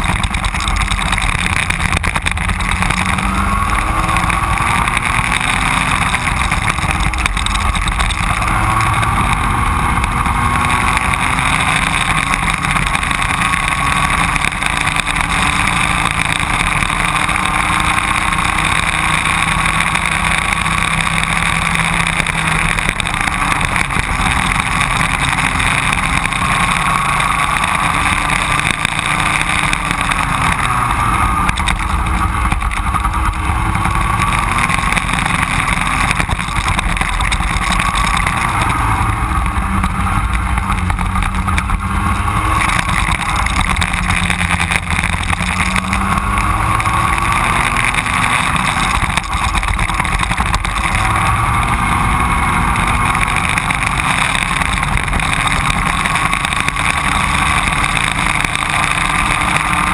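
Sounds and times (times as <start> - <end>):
go-kart engine running: 0.0 - 59.9
low rumble: 22.5 - 53.4.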